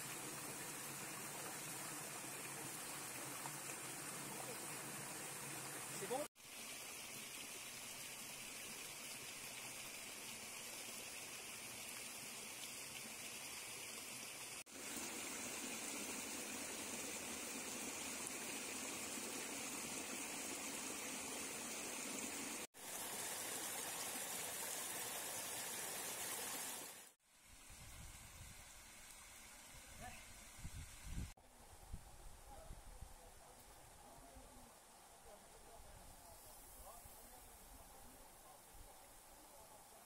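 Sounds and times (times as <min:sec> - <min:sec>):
stream flowing over rocks: 0:00.0 - 0:27.2.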